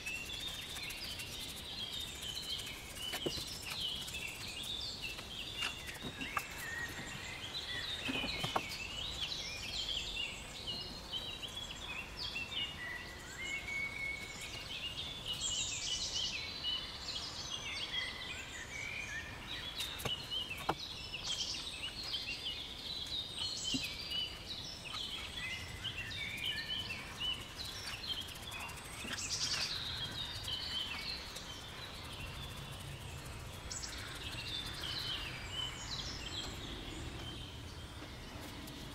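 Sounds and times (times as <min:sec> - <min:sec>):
birds singing and chirping: 0:00.0 - 0:38.9
low background rumble: 0:23.9 - 0:38.9.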